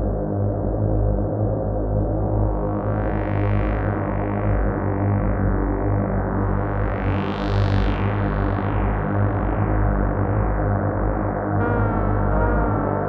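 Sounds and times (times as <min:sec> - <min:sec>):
steady low bass: 0:00.0 - 0:13.0
synthesizer sustained chord: 0:11.6 - 0:13.0.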